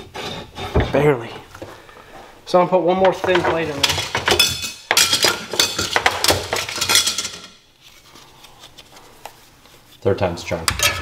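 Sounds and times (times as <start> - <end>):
small metal parts clinking: 3.8 - 7.6.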